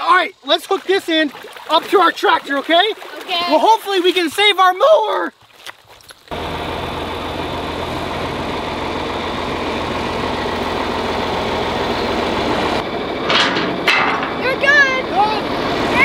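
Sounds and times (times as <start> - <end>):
tractor engine running: 6.3 - 16.0.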